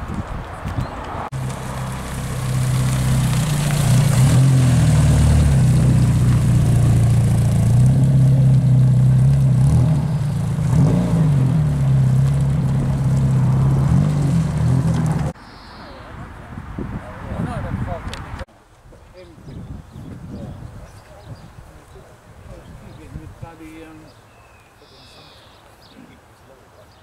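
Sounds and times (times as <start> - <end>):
car engine revving: 1.3 - 15.4.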